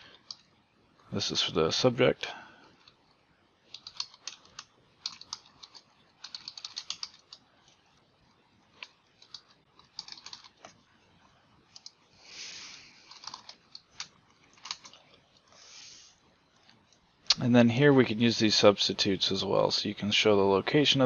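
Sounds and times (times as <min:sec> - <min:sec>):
typing on keyboard: 0:03.7 - 0:07.4, 0:08.8 - 0:10.7, 0:13.1 - 0:15.0.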